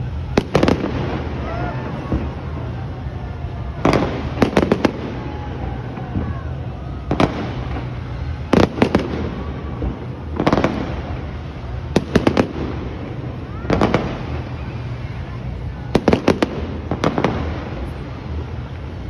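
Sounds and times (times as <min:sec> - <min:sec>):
fireworks bangs: 0:00.0 - 0:19.0
steady low rumble: 0:00.0 - 0:19.0.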